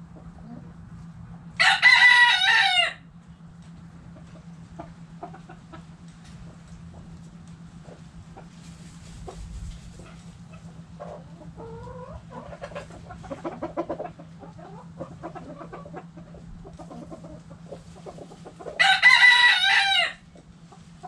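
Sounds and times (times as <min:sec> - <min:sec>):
hens clucking: 0:00.0 - 0:02.9, 0:03.9 - 0:21.0
steady low hum: 0:00.0 - 0:21.0
rooster crowing: 0:01.6 - 0:03.1, 0:18.8 - 0:20.3.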